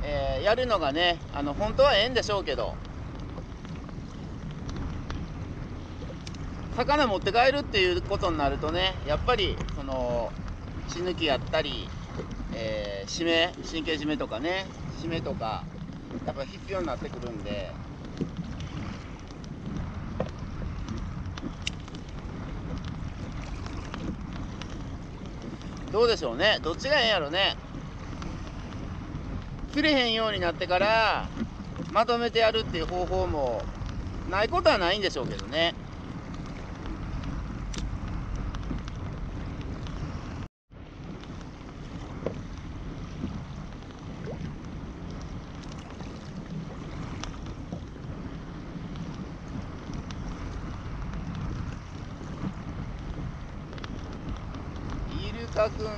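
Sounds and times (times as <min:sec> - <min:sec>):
water lapping against kayak hull: 0:00.0 - 0:55.9
wind buffeting microphone: 0:00.0 - 0:55.9
faint clicks: 0:06.0 - 0:06.4, 0:20.2 - 0:25.9, 0:36.3 - 0:40.0, 0:47.2 - 0:47.9, 0:49.8 - 0:55.2.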